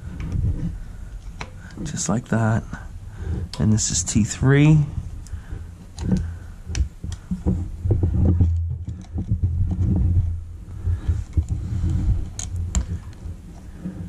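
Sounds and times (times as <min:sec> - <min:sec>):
pliers clicking and scraping on terminals: 0:12.2 - 0:13.2.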